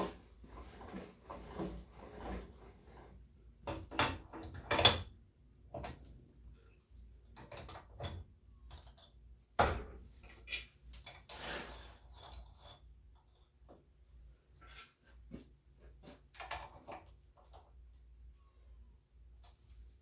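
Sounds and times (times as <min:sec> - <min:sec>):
scraping rustle: 0:00.0 - 0:03.2, 0:11.3 - 0:12.9.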